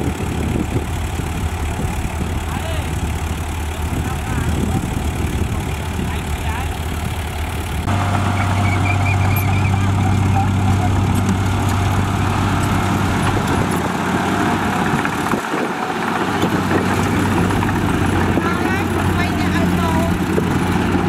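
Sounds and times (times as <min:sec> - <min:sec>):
bulldozer diesel engine running: 0:00.0 - 0:21.0.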